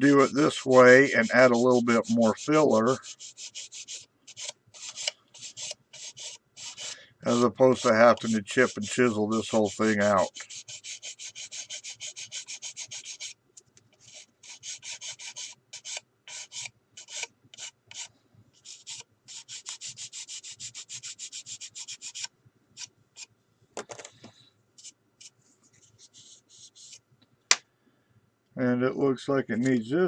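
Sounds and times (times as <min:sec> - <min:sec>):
sanding stick scraping filler: 0:00.0 - 0:13.4, 0:14.0 - 0:23.3, 0:25.9 - 0:27.0.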